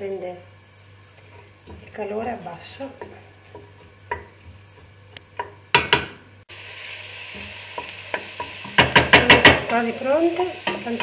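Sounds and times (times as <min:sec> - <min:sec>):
vegetables sizzling in oil: 0:06.4 - 0:11.0.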